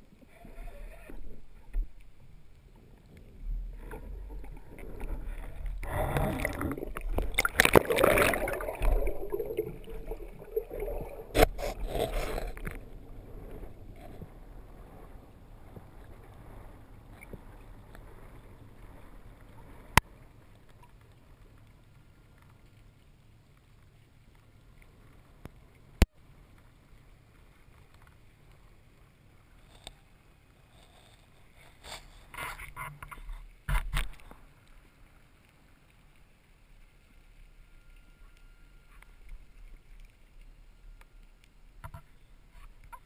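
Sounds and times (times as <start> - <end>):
low underwater murmur: 0.0 - 20.0.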